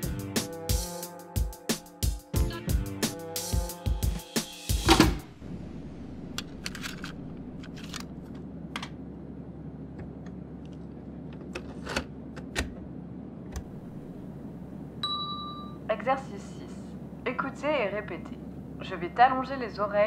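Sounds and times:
music cue: 0.0s - 6.5s
steady low hum: 2.4s - 20.0s.

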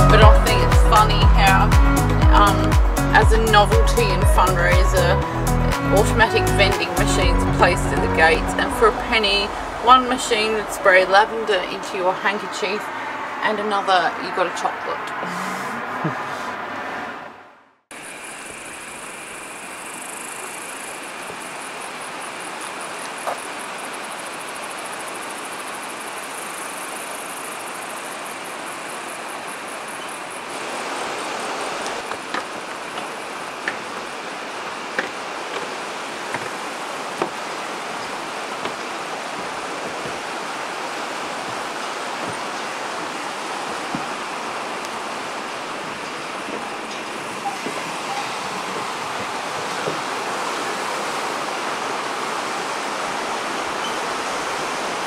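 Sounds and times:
river rushing over rocks: 21.2s - 55.0s
footsteps on wooden boards: 32.0s - 44.9s, 45.7s - 50.2s.

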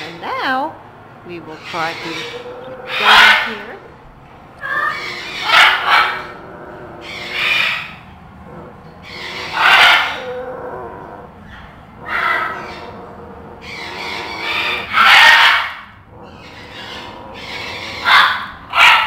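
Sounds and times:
macaw squawking: 1.5s - 3.8s, 4.6s - 6.4s, 7.0s - 8.0s, 13.6s - 19.0s.

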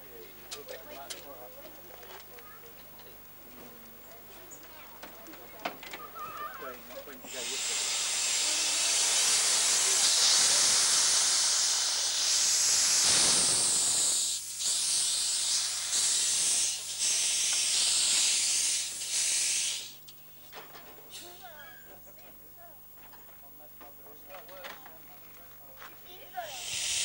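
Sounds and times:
steam hissing from locomotive: 7.2s - 20.0s, 26.3s - 27.0s.

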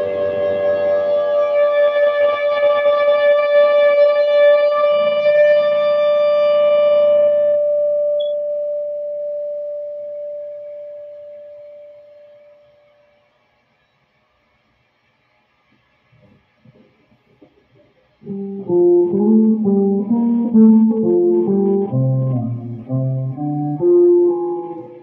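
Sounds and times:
sustained electric guitar note: 0.0s - 9.3s, 18.2s - 25.0s.

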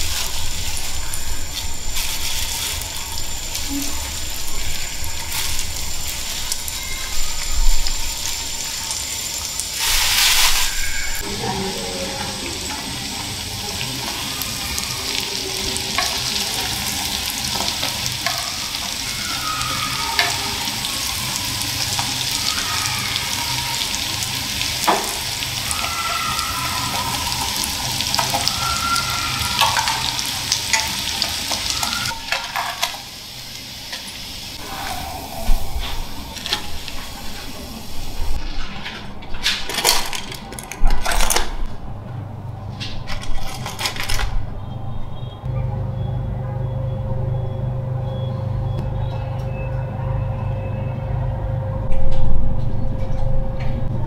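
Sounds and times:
food deep-frying in hot oil: 0.0s - 34.8s, 35.5s - 38.4s.

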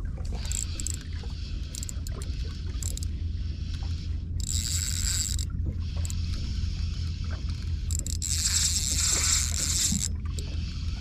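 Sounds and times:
boat engine low rumble: 0.0s - 11.0s.

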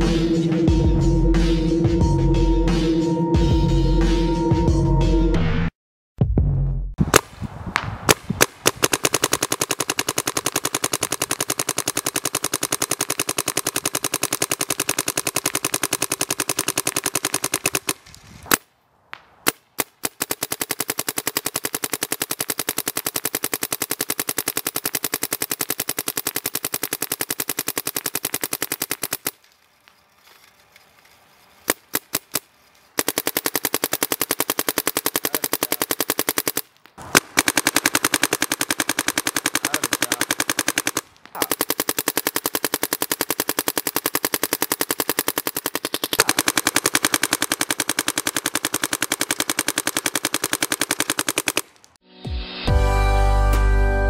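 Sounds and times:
paintball marker rapid firing: 7.1s - 18.6s, 19.4s - 29.4s, 31.7s - 51.8s.

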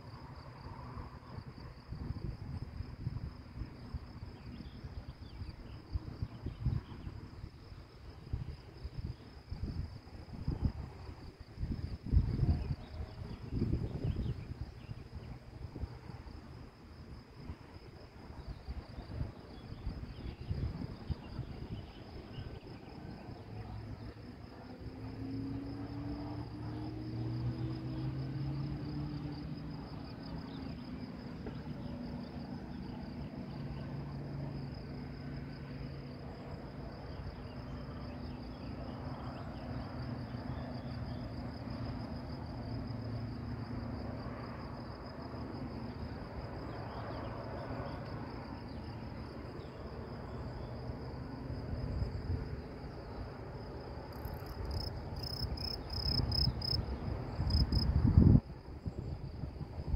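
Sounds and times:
insects chirring: 0.0s - 59.9s
wind buffeting microphone: 1.3s - 16.5s, 17.1s - 23.2s, 54.2s - 59.9s.

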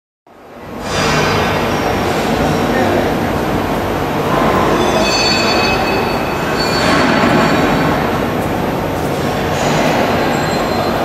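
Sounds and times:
industrial machinery hum: 0.3s - 11.0s
high squealing tones: 3.9s - 8.5s.

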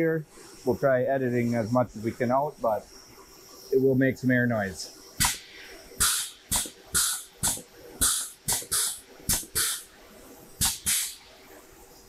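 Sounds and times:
valve clicks: 5.2s - 5.4s, 6.0s - 9.9s, 10.6s - 11.2s
short sharp air hisses: 5.2s - 11.6s.

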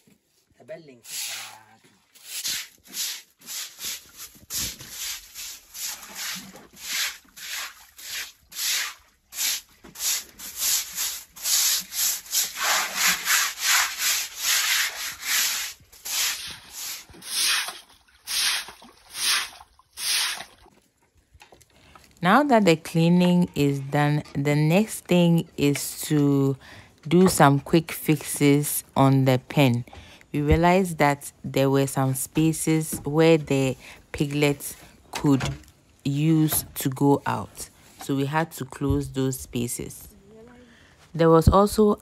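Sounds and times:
stick broom scrubbing wet concrete: 1.0s - 20.6s
water splashing on floor: 1.1s - 20.8s.

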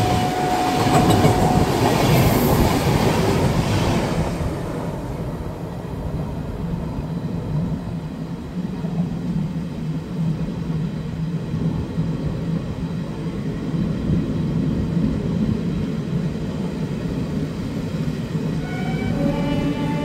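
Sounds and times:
train horn short notes: 0.0s - 1.8s, 18.6s - 20.0s
train wheels rumbling on rails: 0.0s - 20.0s.

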